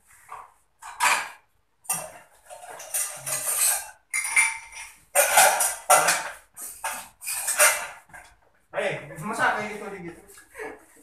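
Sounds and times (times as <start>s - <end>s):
dishes and utensils clattering: 0.2s - 8.5s.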